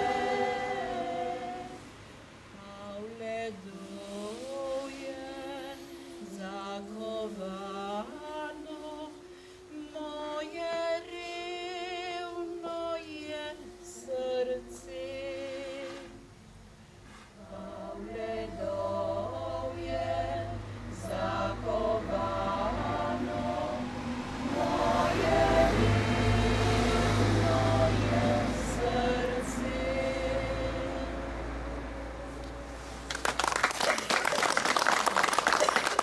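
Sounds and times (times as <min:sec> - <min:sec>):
women's vocal group singing: 0:00.0 - 0:16.3, 0:17.3 - 0:32.1.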